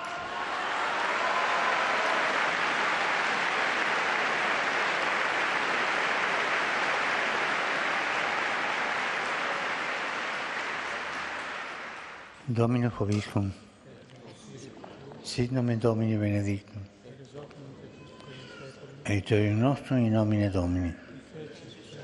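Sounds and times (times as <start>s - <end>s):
large crowd applauding: 0.0s - 12.4s.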